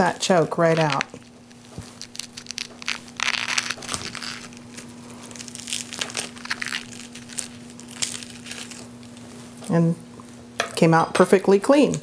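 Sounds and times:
teaspoon scraping artichoke: 0.2 - 9.2.

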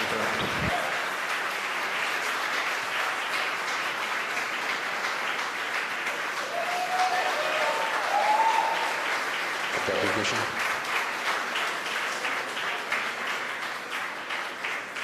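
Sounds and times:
crowd applauding and cheering: 0.0 - 15.0.

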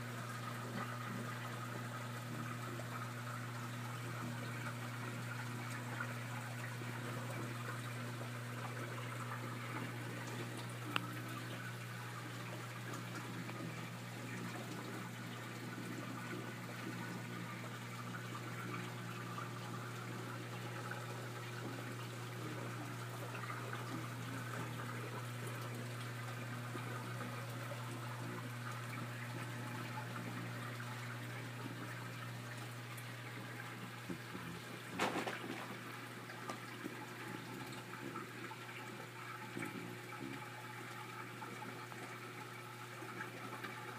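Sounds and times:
water splashing and trickling: 0.1 - 43.9.

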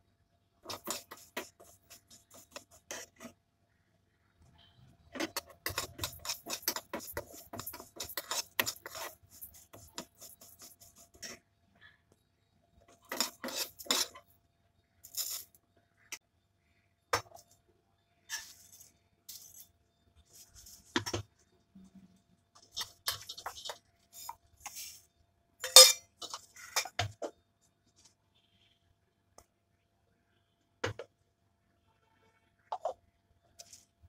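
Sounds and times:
spoon scraping metal pan: 0.7 - 3.3, 5.1 - 11.4, 12.9 - 14.3, 22.7 - 24.9, 25.6 - 27.2.

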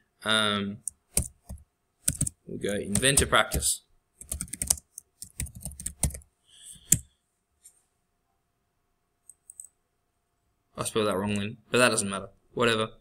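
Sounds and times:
computer keyboard typing: 0.8 - 6.2, 6.8 - 7.0.

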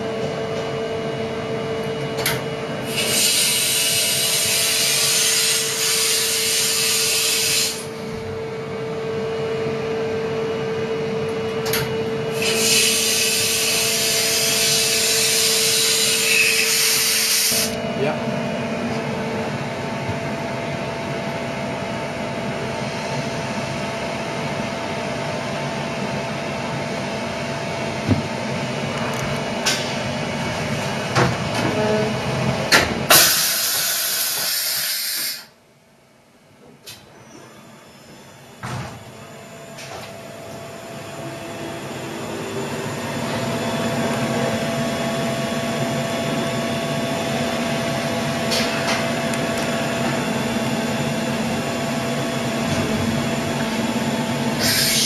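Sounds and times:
air hissing: 2.9 - 7.9, 12.3 - 17.8, 33.1 - 35.6, 54.6 - 55.0.

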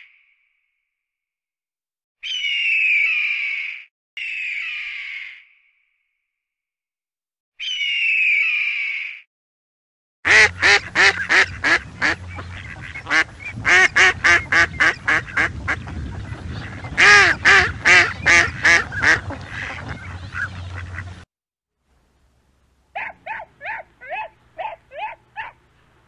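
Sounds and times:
geese honking: 10.3 - 21.2.

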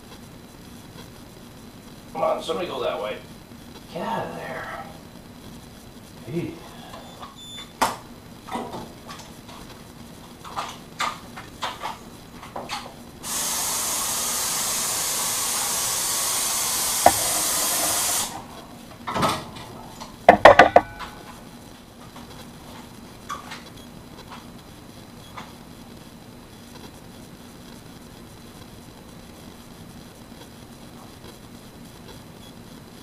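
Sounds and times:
water hose spraying: 13.2 - 18.5
clicks and knocks: 20.3 - 21.2
sharp knocks: 20.3 - 21.2.

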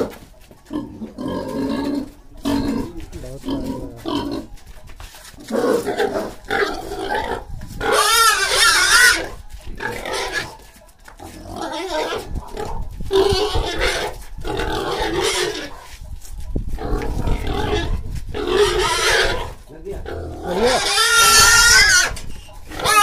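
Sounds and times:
pig squealing: 5.5 - 10.6, 11.5 - 12.3, 13.2 - 15.8, 16.9 - 23.0.

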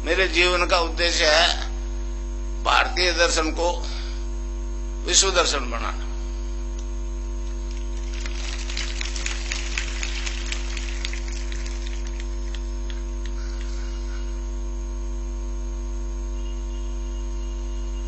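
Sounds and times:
electrical mains hum: 0.0 - 18.0
faint crackles and clicks: 6.8 - 13.7.

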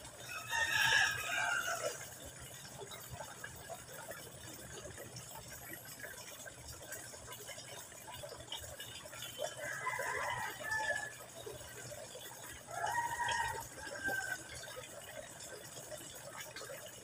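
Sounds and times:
water trickling into pond: 0.0 - 17.0
rooster crowing: 0.3 - 2.0, 9.6 - 11.1, 12.7 - 14.5.

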